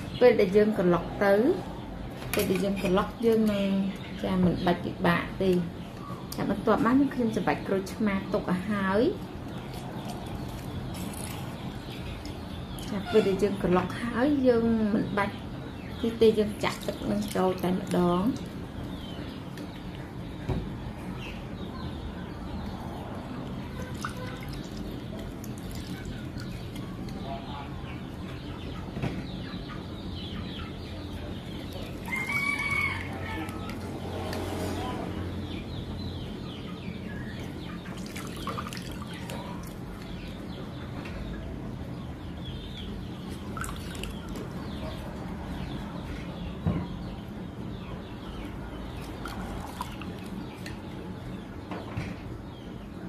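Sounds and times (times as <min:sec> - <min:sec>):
juice trickling and dripping into bowl: 0:09.4 - 0:13.0, 0:23.4 - 0:27.3, 0:31.4 - 0:34.5, 0:37.4 - 0:40.4, 0:43.2 - 0:44.6, 0:48.9 - 0:50.9
juice dripping into a bowl: 0:23.8 - 0:27.2, 0:37.9 - 0:40.1, 0:43.3 - 0:44.5.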